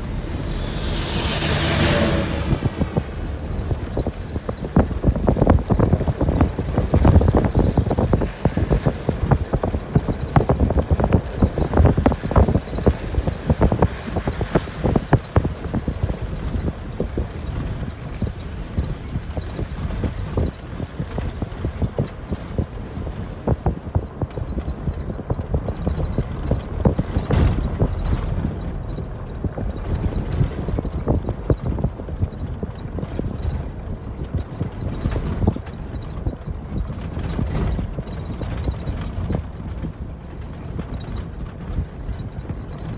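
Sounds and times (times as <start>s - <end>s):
car driving on rough road: 0.0s - 42.9s.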